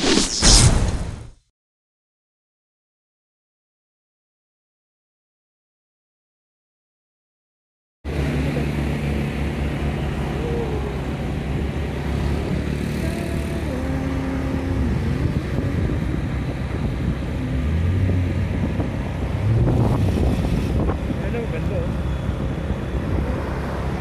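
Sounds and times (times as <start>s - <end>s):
vehicle engine and road noise: 8.1s - 24.0s.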